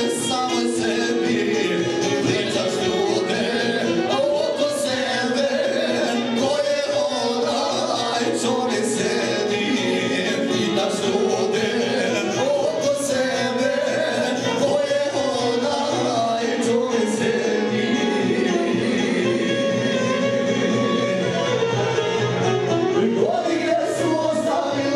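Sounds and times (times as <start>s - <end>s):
men singing into microphones: 0.0s - 22.2s, 22.8s - 24.9s.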